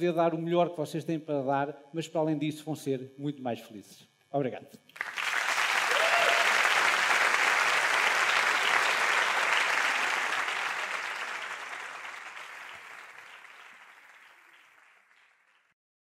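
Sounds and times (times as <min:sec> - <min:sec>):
audience applauding: 0:05.0 - 0:15.8.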